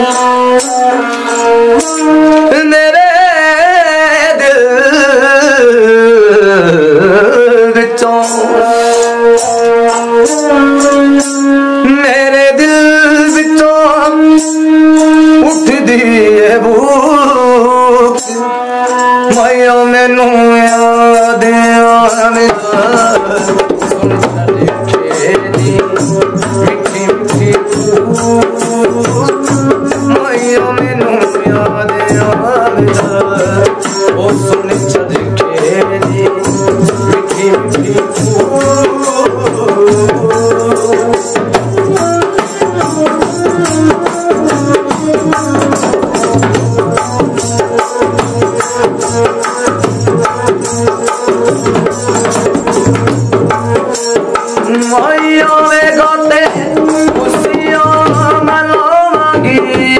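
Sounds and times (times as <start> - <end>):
fast clicking percussion: 0.0 - 3.0, 8.0 - 16.5, 18.0 - 59.9.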